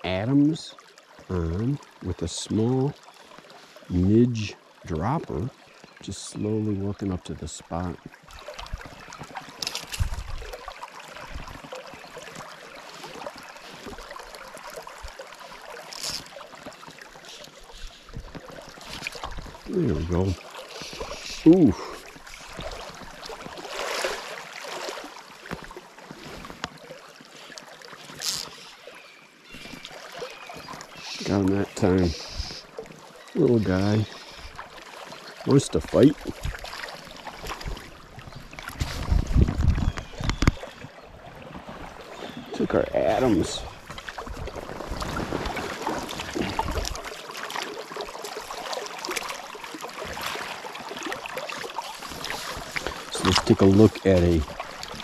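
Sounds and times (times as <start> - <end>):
river running over gravel: 0.0 - 55.0
fly line clicks and rustles: 8.6 - 10.6, 15.7 - 19.7, 27.5 - 28.6
net splashing in water: 22.7 - 25.2, 44.1 - 53.5.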